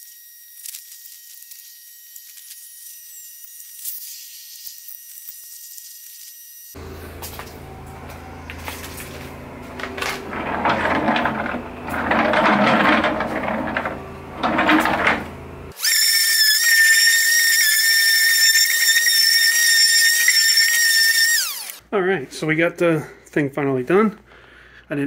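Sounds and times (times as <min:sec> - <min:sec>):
wooden cabinet scraping and knocking: 0:09.7 - 0:15.5
cordless drill whining: 0:15.8 - 0:21.8.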